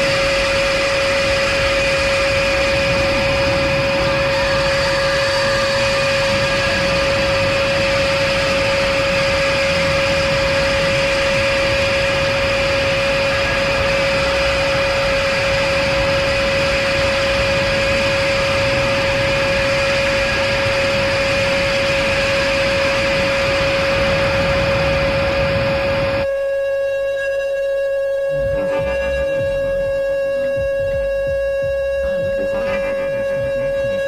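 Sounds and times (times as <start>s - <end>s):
dense wall of hiss: 0.0s - 26.1s
steady mid-pitched drone tone: 0.0s - 34.0s
faint high tones: 30.8s - 34.0s.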